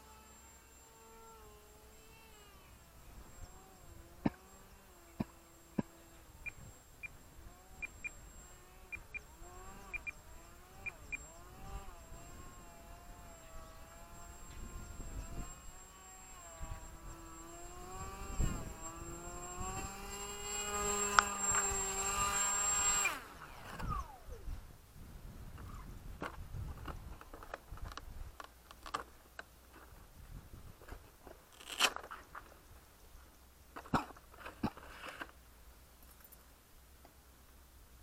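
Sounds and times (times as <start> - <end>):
rc plane motor whining: 0.0 - 24.6.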